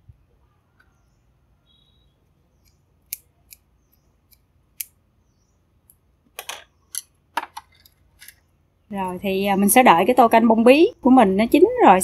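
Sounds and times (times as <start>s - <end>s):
scissors snipping: 2.6s - 5.0s.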